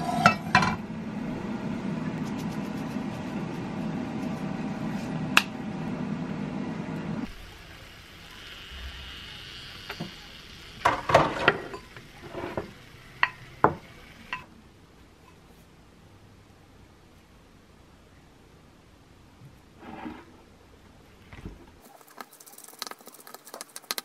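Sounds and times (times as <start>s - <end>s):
kitchen appliance humming: 0.0s - 14.4s.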